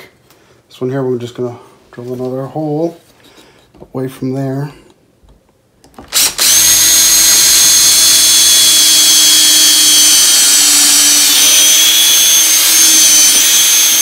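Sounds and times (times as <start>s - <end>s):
cordless drill boring into wood: 6.1s - 14.0s.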